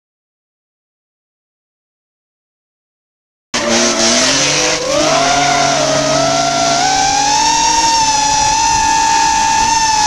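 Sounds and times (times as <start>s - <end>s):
drone motors and propellers whining: 3.6s - 10.0s.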